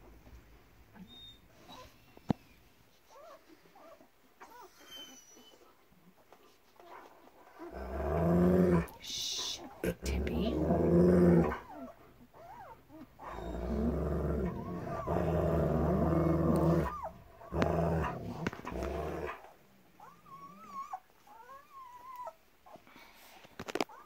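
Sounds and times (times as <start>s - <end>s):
puppies squeaking: 3.1s - 5.7s, 11.6s - 15.4s, 16.2s - 19.4s
dog growling low: 7.6s - 19.5s.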